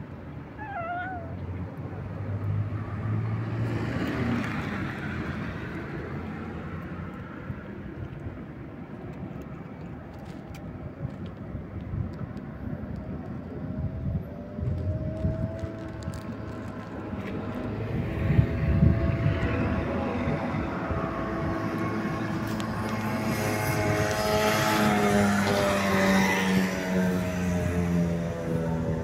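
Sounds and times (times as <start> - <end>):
traffic rumble: 0.0 - 29.0
vehicle passing by: 0.6 - 7.1, 14.5 - 29.0.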